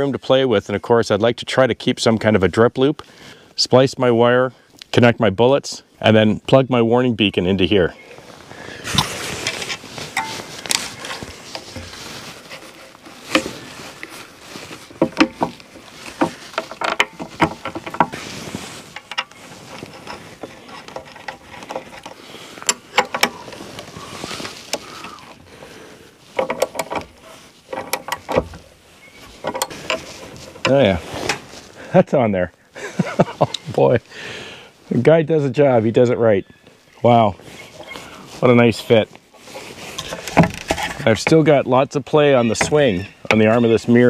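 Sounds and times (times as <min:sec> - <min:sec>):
clicks and knocks of bracket handling: 0:14.9 - 0:18.2, 0:18.9 - 0:23.5, 0:26.3 - 0:28.6, 0:29.3 - 0:31.4.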